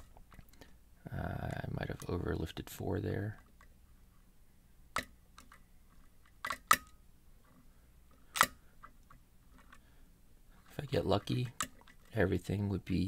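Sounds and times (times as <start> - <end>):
lock pick clicks: 8.3 - 8.6.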